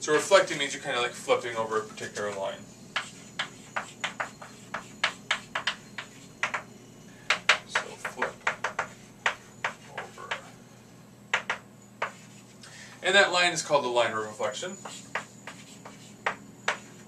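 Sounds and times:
chalk writing on chalkboard: 2.9 - 6.7, 7.3 - 10.5, 11.3 - 12.6, 14.4 - 17.0.

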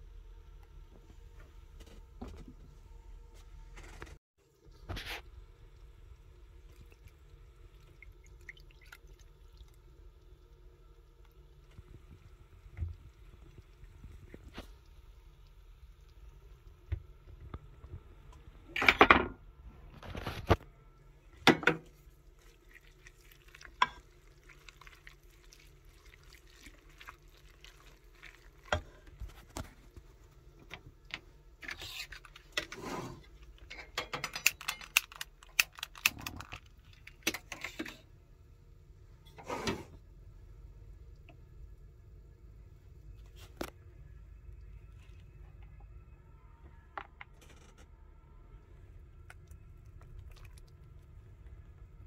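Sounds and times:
wooden spoon stirring in metal pot: 21.4 - 30.5, 31.2 - 34.0.

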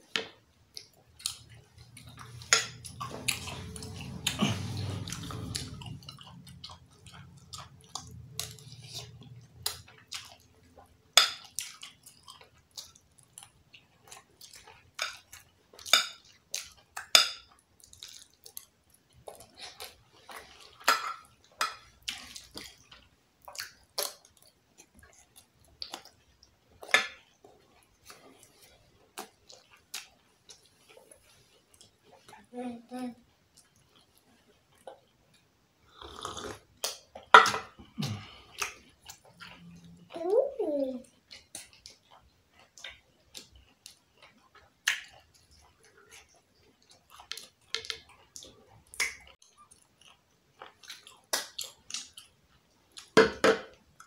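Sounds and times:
chewing and mouth sounds: 0.7 - 32.5, 33.4 - 54.0.

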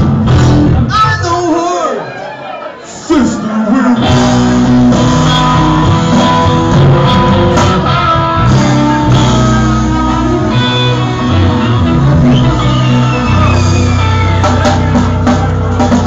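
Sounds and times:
live rock band playing: 0.0 - 1.7, 2.9 - 16.0.

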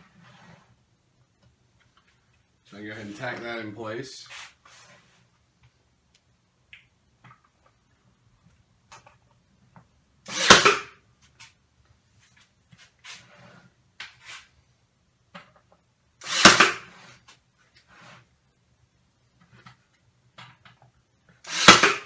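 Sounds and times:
nail gun firing: 10.3 - 11.0, 16.2 - 16.9, 21.4 - 22.0.

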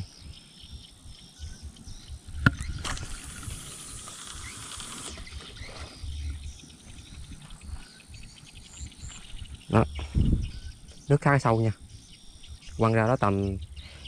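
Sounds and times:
fishing line hissing off reel: 2.5 - 6.1
fishing reel ticking: 2.8 - 5.6.

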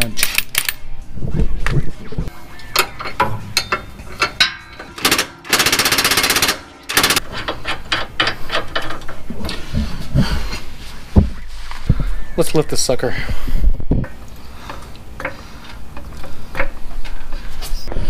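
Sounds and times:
metallic clicks and clanks of tools: 0.0 - 0.8, 2.6 - 9.6
impact wrench hammering: 2.8 - 8.4.

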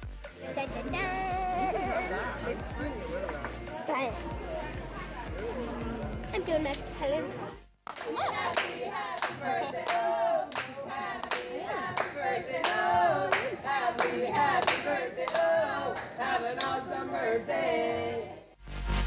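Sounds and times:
rhythmic clapping: 0.2 - 5.5, 7.8 - 17.0
group of voices singing: 0.3 - 6.4, 8.0 - 18.6.

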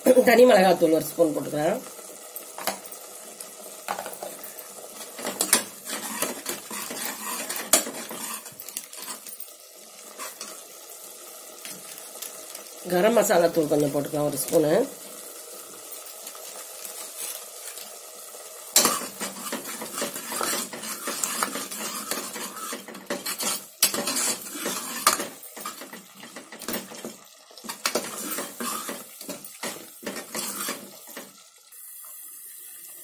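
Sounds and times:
ladle scraping a metal pot: 5.0 - 9.3, 18.8 - 27.1, 27.7 - 31.2.

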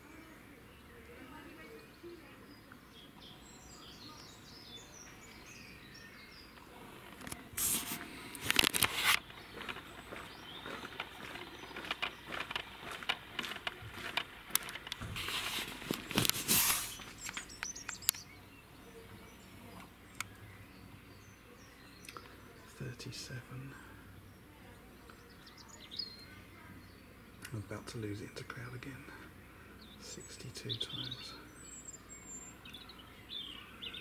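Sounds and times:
faint birdsong: 0.0 - 34.0
handling noise rustling: 7.0 - 17.7
sharp clicks: 10.9 - 15.0, 17.0 - 18.2.

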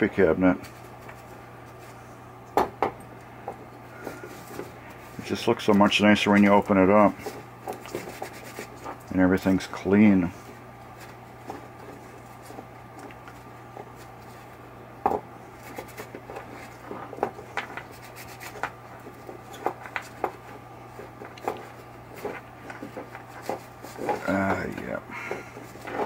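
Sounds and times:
steady low hum: 0.0 - 26.0
cloth rubbing over metal coil: 4.0 - 12.7, 15.5 - 24.8.

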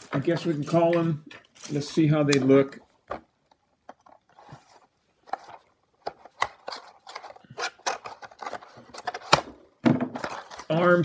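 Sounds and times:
cardboard boxes handled and opened: 3.0 - 11.0.

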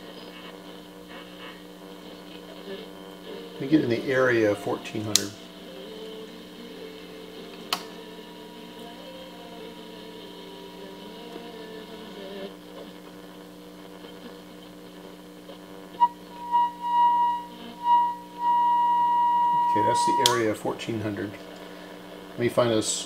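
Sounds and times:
radio speaker hum and hiss: 0.0 - 23.0
whistle-like radio tone: 16.0 - 20.6.

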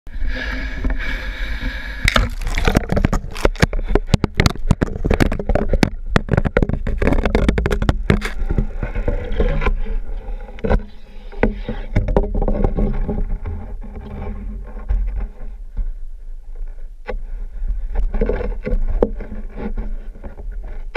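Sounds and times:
water gurgling and sloshing: 0.1 - 20.9
sharp clicks and knocks: 2.0 - 9.8.

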